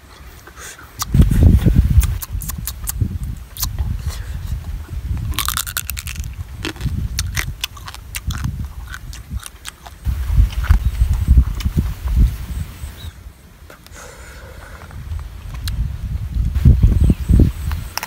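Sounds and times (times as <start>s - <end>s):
wet mouth clicks: 1.0s - 4.1s, 5.4s - 10.8s
crab shell crunching: 5.3s - 10.8s.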